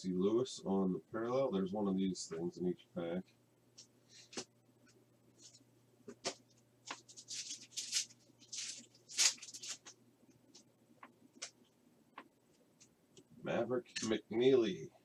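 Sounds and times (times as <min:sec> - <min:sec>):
foil pack tearing and crinkling: 0:07.2 - 0:09.9.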